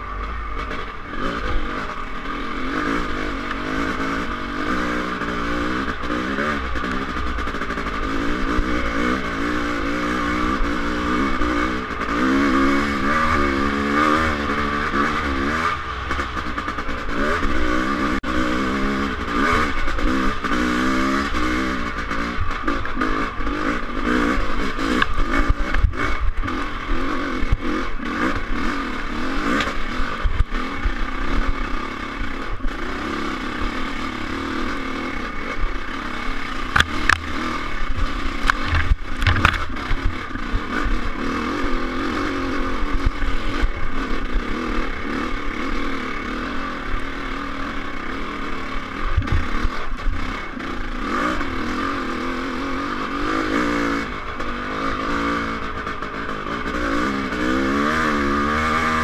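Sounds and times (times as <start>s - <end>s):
dirt bike engine revving: 0.0s - 59.0s
bike clattering on rough ground: 38.4s - 40.1s.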